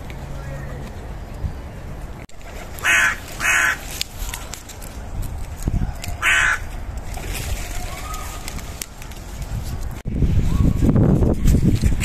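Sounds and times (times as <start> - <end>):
low outdoor rumble: 0.0 - 12.0
crow cawing: 2.8 - 3.8, 6.2 - 6.7.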